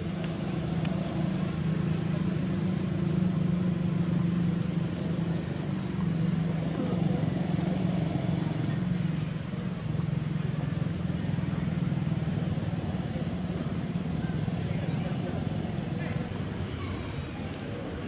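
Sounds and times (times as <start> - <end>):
engine humming steadily: 0.0 - 18.0.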